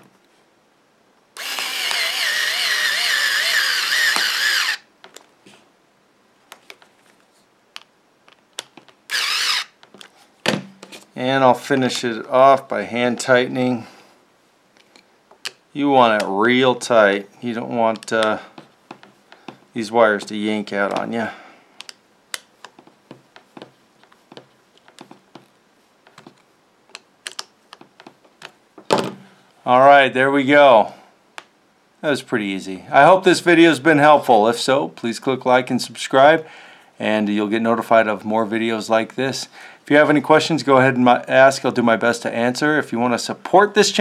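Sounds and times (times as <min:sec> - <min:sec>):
power screwdriver motor whining: 0:01.4 - 0:04.9, 0:09.1 - 0:09.8.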